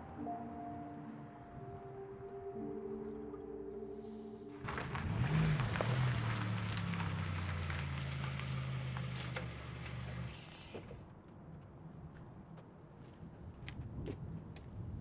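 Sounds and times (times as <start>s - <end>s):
tyres crunching on gravel: 4.6s - 10.3s
car engine running: 4.6s - 10.4s.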